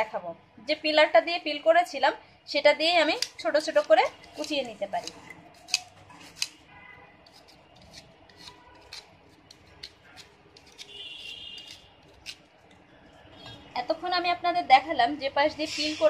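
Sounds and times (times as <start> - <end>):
vegetable peeler scraping fruit: 3.1 - 6.6, 7.2 - 12.5.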